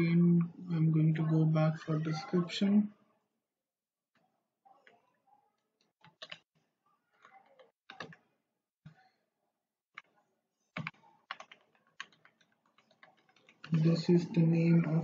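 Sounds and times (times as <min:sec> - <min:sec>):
faint keyboard typing: 0:04.1 - 0:09.1, 0:09.9 - 0:15.0.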